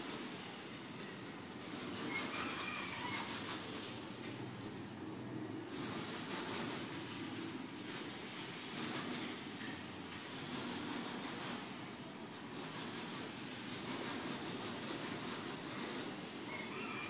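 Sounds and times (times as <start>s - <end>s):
fingers handling fishing line: 3.8s - 4.9s.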